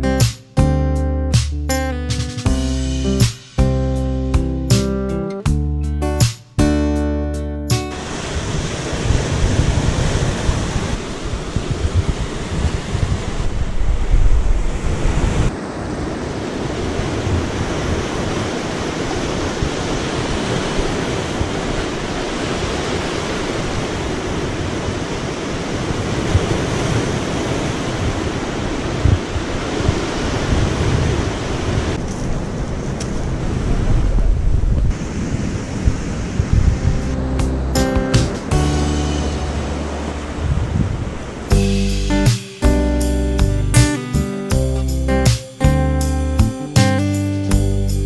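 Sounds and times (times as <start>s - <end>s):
surf washing onto rocky shore: 7.9s - 34.3s, 34.9s - 42.7s
wind buffeting microphone: 8.0s - 41.9s.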